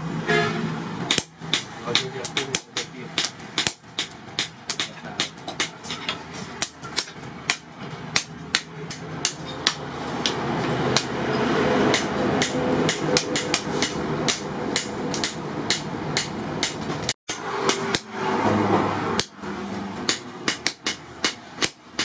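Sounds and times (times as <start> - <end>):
hammer striking steel on anvil: 1.1 - 10.4, 11.9 - 18.2, 20.0 - 22.0.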